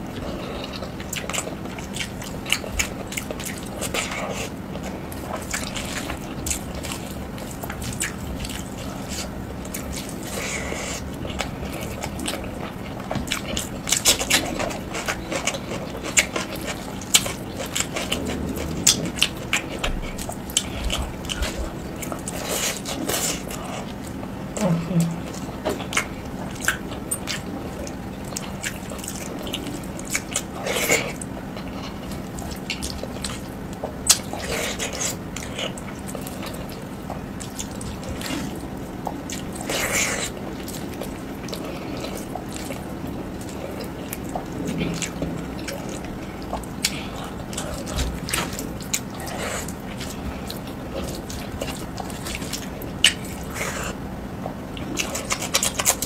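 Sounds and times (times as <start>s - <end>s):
wet mouth clicks and chewing: 0.0s - 56.0s.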